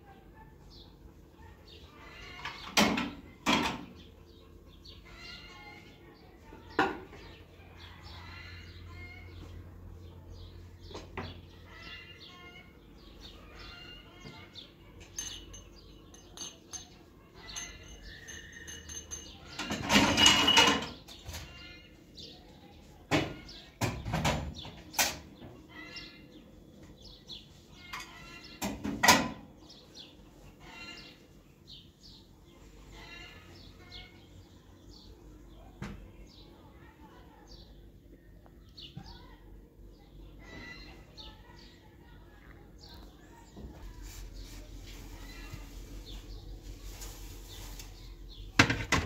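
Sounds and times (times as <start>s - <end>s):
small birds chirping: 29.5s - 48.8s.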